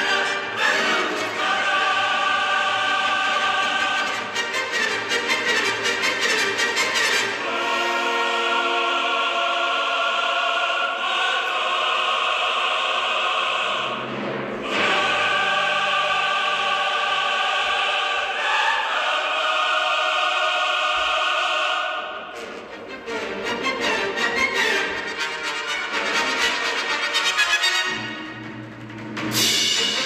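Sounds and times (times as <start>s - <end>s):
choir with orchestra: 0.0s - 30.0s.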